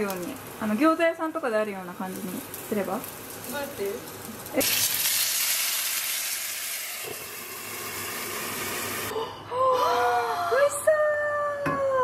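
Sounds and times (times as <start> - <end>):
water hissing in hot pan: 0.0 - 9.1.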